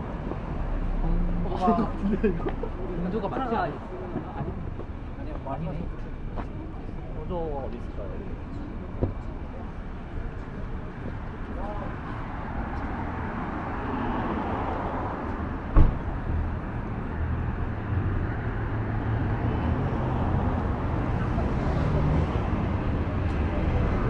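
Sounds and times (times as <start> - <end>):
low vehicle engine rumble: 0.0 - 24.0
street traffic noise: 0.0 - 24.0
sharp knock: 15.7 - 16.0.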